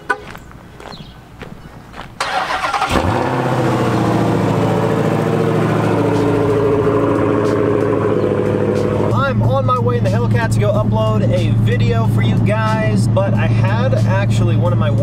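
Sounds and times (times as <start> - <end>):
car engine idling: 2.2 - 15.0.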